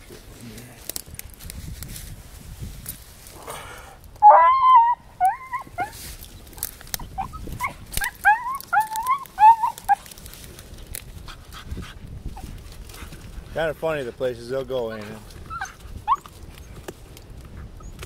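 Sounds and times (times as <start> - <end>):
dog yelping and whining: 4.2 - 6.0, 7.0 - 10.0, 14.9 - 16.3.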